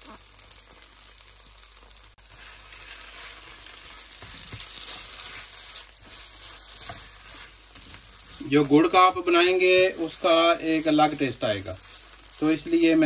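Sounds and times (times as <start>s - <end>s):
food sizzling in a wok: 0.0s - 13.0s
spatula scraping a pan: 2.3s - 12.4s.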